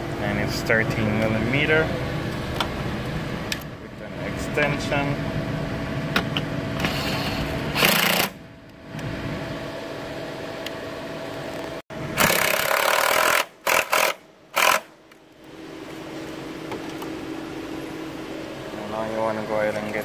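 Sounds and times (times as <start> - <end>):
power tool driving bolt: 7.7 - 8.4, 12.2 - 14.9.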